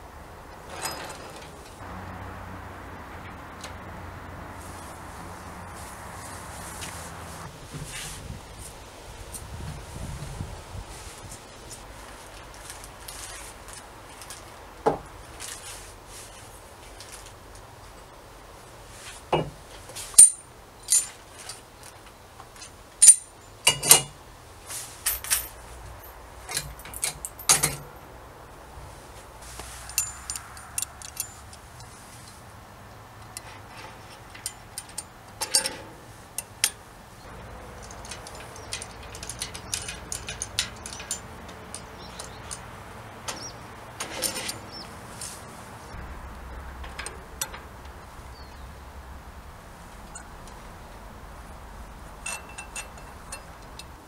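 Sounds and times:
metal brackets clinking and knocking: 0.6 - 1.8, 19.3 - 21.7, 22.6 - 24.2, 25.0 - 28.1, 29.6 - 32.4, 33.2 - 45.3, 46.6 - 48.6, 52.1 - 54.0.

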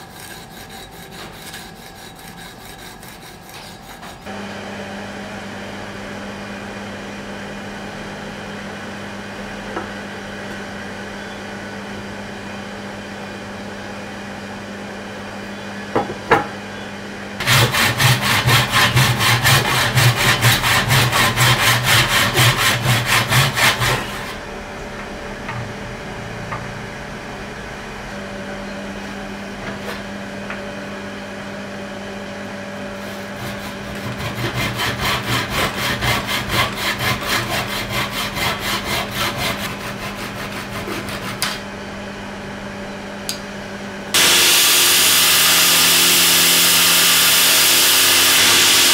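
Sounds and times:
hand saw cutting wood: 0.0 - 4.3, 17.4 - 24.4, 33.0 - 41.6, 44.2 - 48.9.

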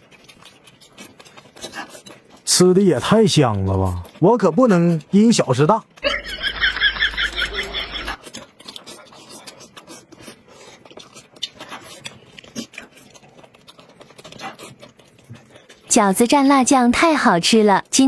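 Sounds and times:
chewing and smacking: 0.0 - 18.0
person laughing: 6.0 - 8.2.

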